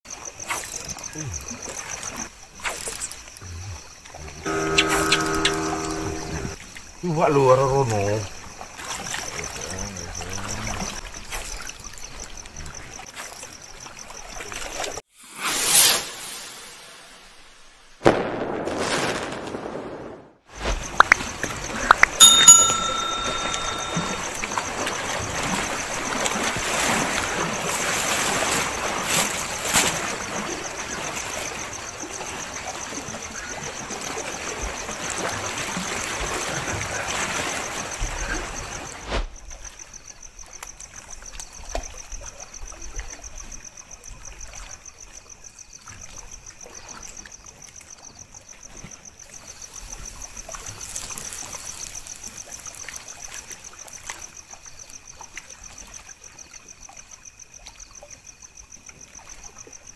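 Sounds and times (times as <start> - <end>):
crickets chirping: 0.1 - 15.3, 16.2 - 59.9
water washing against rocks: 49.9 - 54.4.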